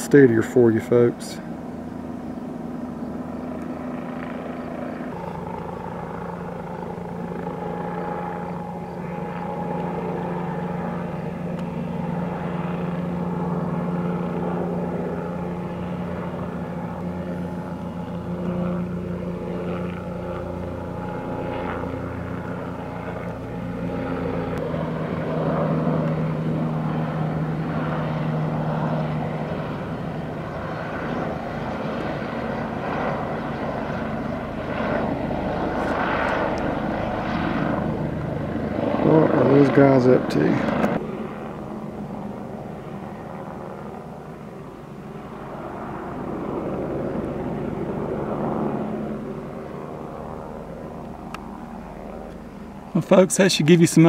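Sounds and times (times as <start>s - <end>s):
helicopter rotor and engine drone: 0.0s - 54.0s.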